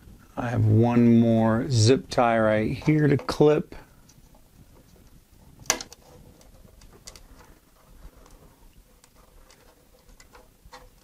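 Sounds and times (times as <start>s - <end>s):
faint clicks and rustles: 2.7s - 11.0s.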